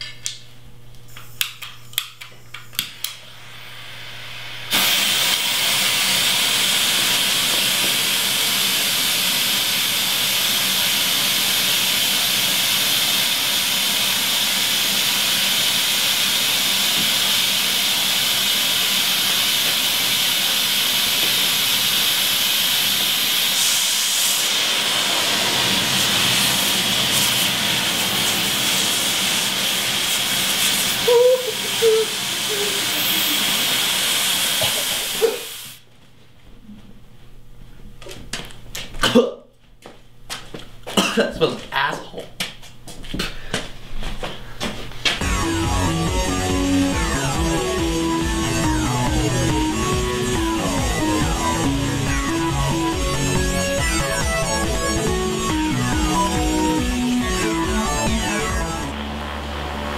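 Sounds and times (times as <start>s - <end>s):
smoke bomb burning with hiss: 3.2s - 35.8s.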